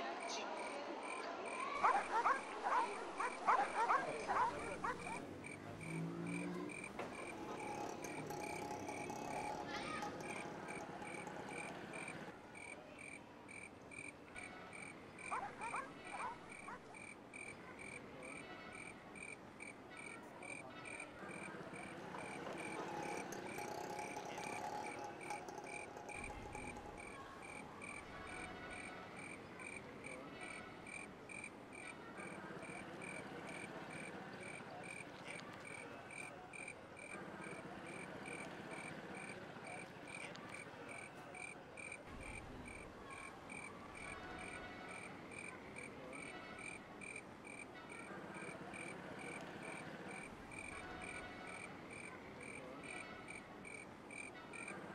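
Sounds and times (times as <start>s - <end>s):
frogs croaking: 0.0s - 54.9s
crickets chirping: 0.6s - 14.1s, 30.9s - 54.7s.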